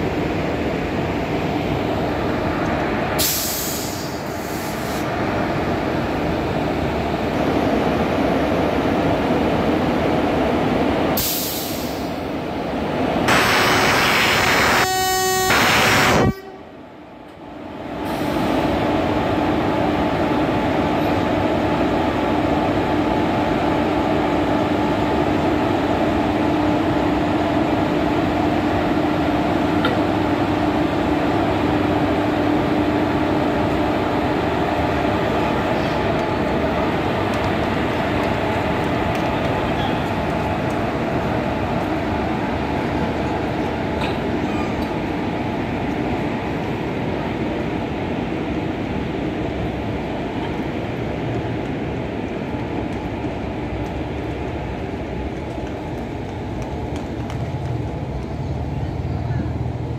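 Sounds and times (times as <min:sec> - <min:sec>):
locomotive blowers and wheels rumbling: 0:00.0 - 0:59.9
train horn: 0:13.3 - 0:16.8.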